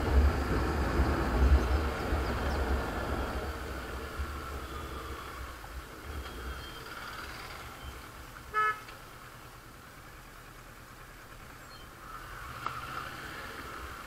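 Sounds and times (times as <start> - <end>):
motorcycle riding rumble: 0.0 - 14.0
vehicle horn toot: 8.5 - 8.9.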